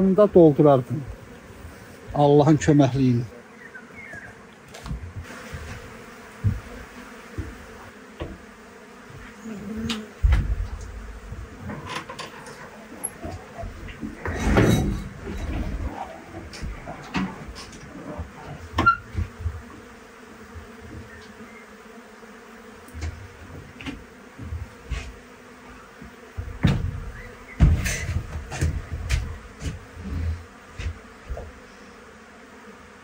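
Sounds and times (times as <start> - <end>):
bees buzzing: 0.0 - 33.0
low thumps: 10.1 - 11.8, 26.4 - 31.6.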